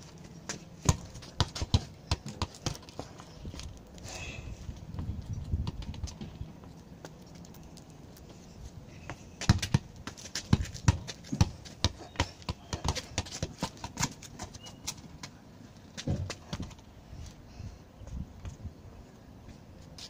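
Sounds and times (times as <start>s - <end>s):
football taps on concrete: 9.4s - 14.4s.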